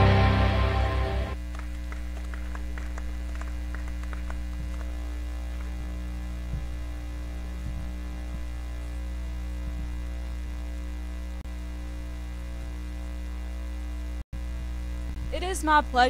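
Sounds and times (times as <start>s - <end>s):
electrical mains hum: 0.0s - 16.0s
soft low thumps: 5.9s - 10.4s.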